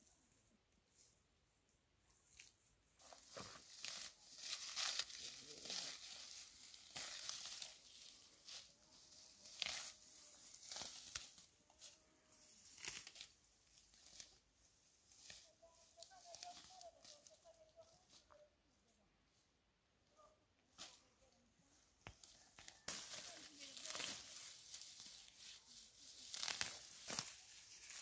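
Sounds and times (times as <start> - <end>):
leafy greens rustling and tearing: 2.3 - 12.0, 12.6 - 14.4, 22.2 - 28.0.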